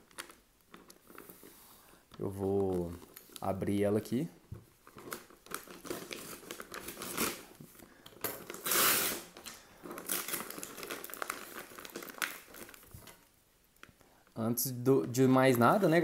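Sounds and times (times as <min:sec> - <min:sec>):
paper and tape crinkling and tearing: 0:00.0 - 0:04.0, 0:04.7 - 0:13.3, 0:15.0 - 0:16.0.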